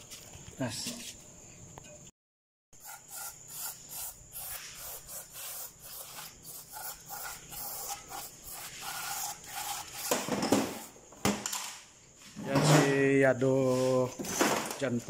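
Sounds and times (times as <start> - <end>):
aerosol spray hissing: 2.8 - 10.1.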